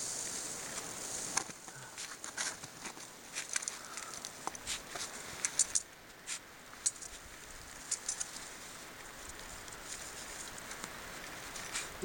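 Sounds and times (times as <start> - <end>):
faint steady hiss: 0.0 - 12.0
climbing gear clicks and scrapes: 1.4 - 5.9, 6.8 - 12.0.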